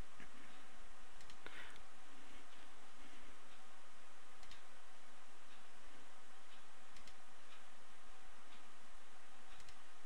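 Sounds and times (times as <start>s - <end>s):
microphone hiss: 0.0s - 10.0s
computer mouse click: 1.2s - 1.8s, 4.4s - 4.7s, 6.9s - 7.2s, 9.5s - 9.8s.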